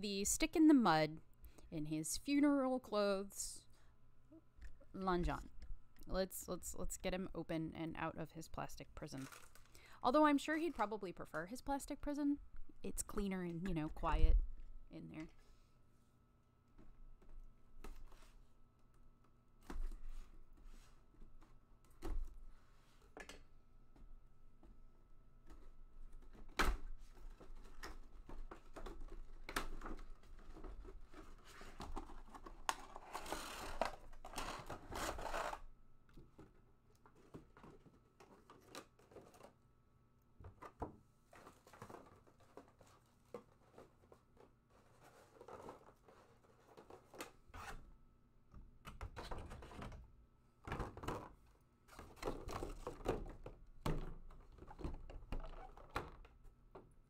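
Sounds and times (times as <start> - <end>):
plastic packaging crinkling: 9.1 - 9.8.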